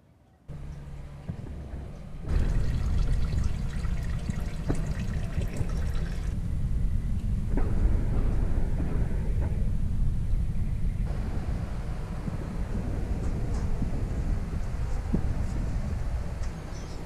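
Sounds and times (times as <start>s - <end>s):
low rumble: 0.5s - 17.0s
coolant splashing into pan: 2.3s - 6.4s.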